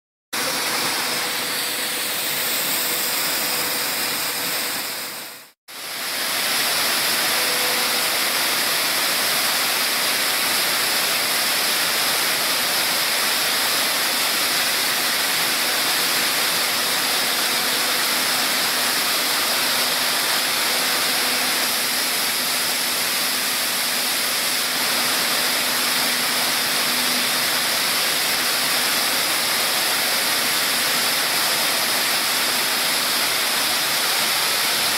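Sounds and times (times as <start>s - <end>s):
corn kernels rushing through machine: 0.4s - 34.9s.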